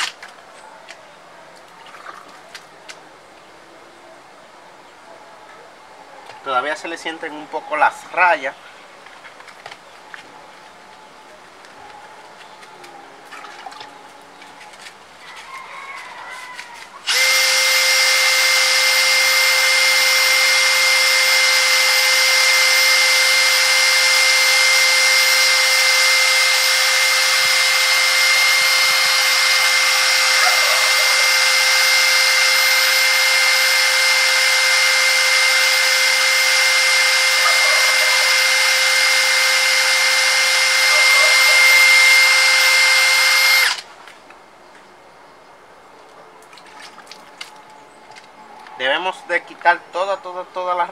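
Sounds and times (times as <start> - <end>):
cordless drill whining: 17.0 - 43.9.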